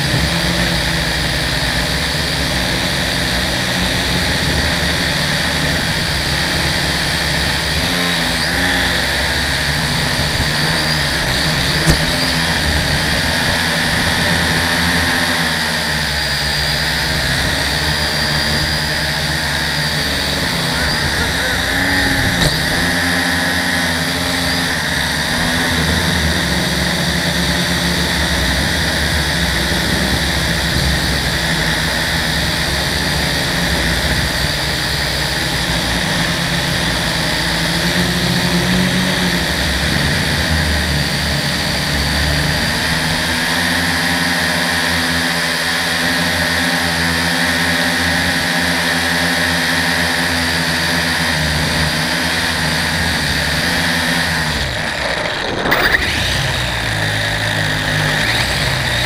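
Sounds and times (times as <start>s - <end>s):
drone motors whining: 0.0s - 59.0s.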